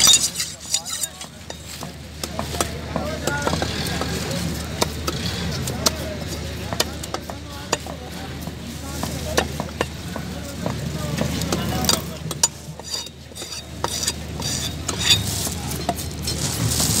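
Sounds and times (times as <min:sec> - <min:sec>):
knife scraping wood: 0:00.0 - 0:01.7, 0:11.9 - 0:15.7
steady background noise: 0:00.0 - 0:17.0.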